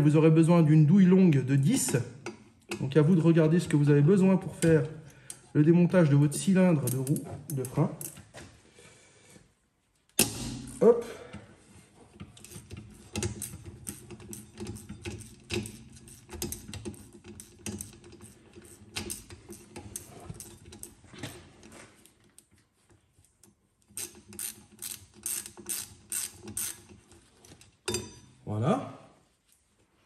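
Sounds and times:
socket ratchet clicking: 0:23.9 - 0:27.0.

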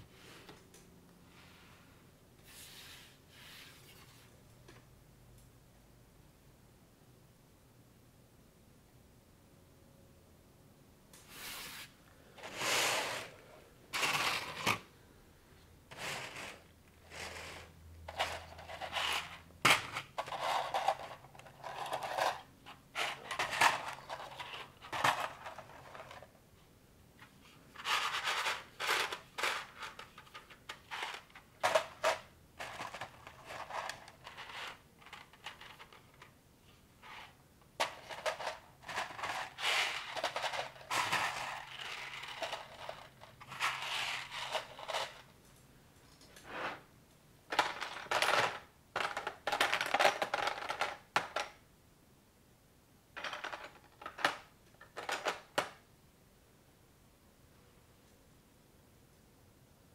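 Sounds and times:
rummaging through plastic parts: 0:13.9 - 0:14.9, 0:15.9 - 0:26.3, 0:27.8 - 0:36.3, 0:37.8 - 0:45.2, 0:53.2 - 0:55.8
plastic pieces clicking and snapping: 0:47.5 - 0:51.6.

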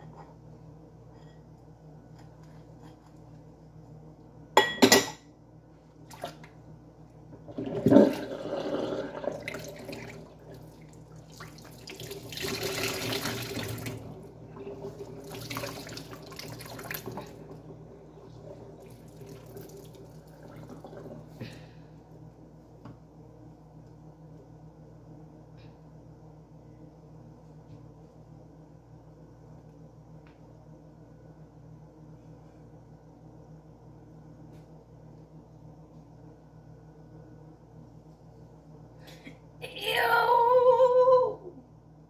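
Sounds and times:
glass bowl clinking: 0:04.6 - 0:05.2
water splashing in sink: 0:06.0 - 0:06.6, 0:07.4 - 0:21.4.

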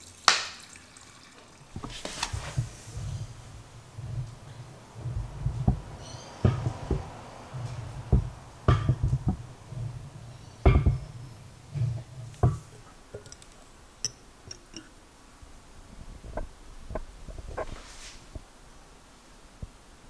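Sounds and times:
spoon knocking against glass: 0:13.2 - 0:14.9.

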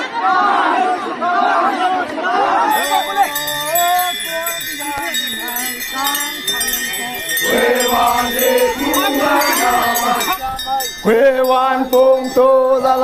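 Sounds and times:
crowd chanting together: 0:00.0 - 0:03.8, 0:04.9 - 0:13.0
steady high ringing tone: 0:02.7 - 0:13.0.

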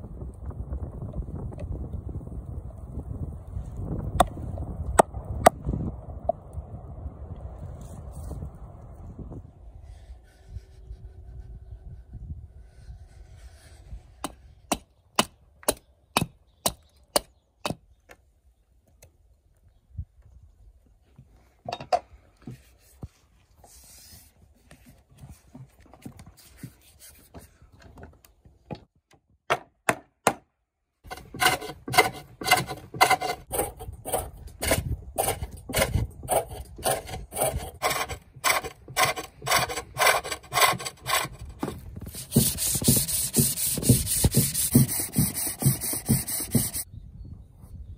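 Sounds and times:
axe chopping wood: 0:29.4 - 0:30.5.

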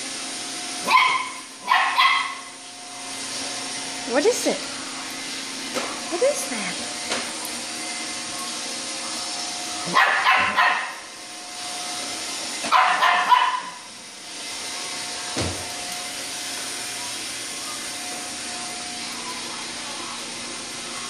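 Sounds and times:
puppy yapping barks: 0:00.8 - 0:02.5, 0:09.9 - 0:11.0, 0:12.7 - 0:13.8.

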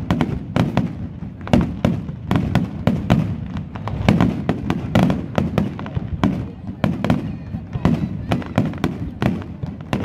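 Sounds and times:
fireworks bursting: 0:00.0 - 0:10.0.

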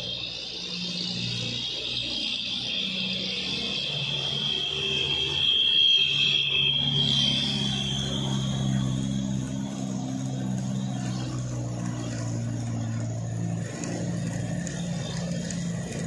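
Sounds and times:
diesel truck engines droning: 0:00.0 - 0:16.0.

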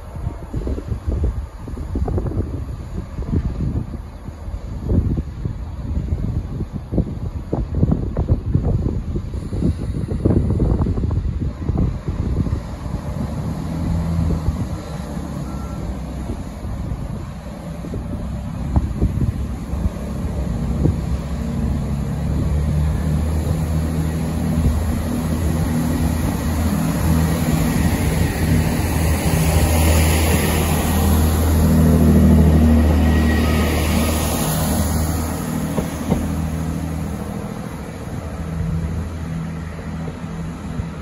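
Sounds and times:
diesel train engine drone: 0:00.0 - 0:41.0
wheel and rail hiss: 0:08.8 - 0:41.0.

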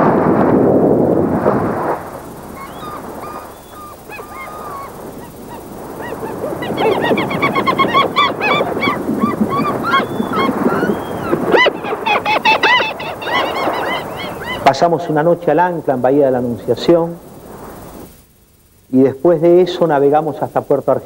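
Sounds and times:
steady background rush: 0:01.1 - 0:18.8
flock of birds calling: 0:02.4 - 0:15.4.

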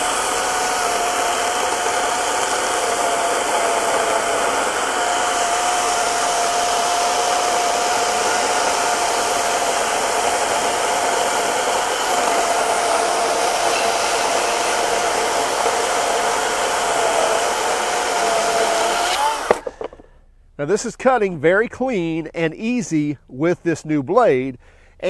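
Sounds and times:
chainsaw cutting log: 0:00.0 - 0:20.1.

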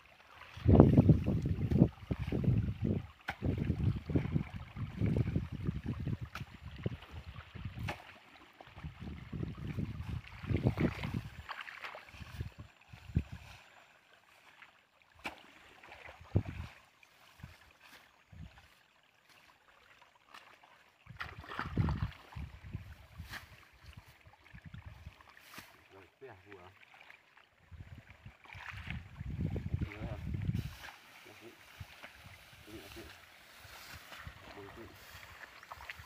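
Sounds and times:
water sloshing and splashing: 0:00.0 - 0:36.0
wind buffeting microphone: 0:00.6 - 0:07.9, 0:08.8 - 0:11.4, 0:12.1 - 0:13.4, 0:16.2 - 0:16.7, 0:21.1 - 0:25.1, 0:27.7 - 0:30.8
grass rustling: 0:29.8 - 0:36.0.

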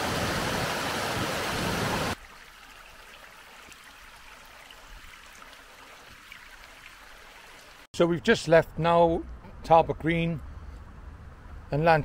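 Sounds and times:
river water rushing over stones: 0:00.0 - 0:07.8.

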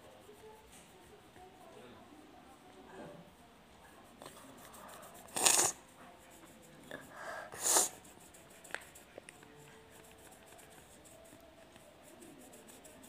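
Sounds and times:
drawn-in breath: 0:06.9 - 0:08.0.

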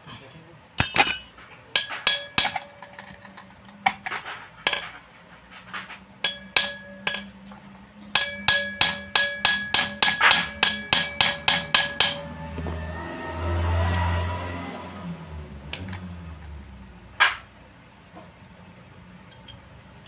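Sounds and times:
low steady hum: 0:00.1 - 0:01.5
wrench tapping on metal: 0:00.8 - 0:02.7.

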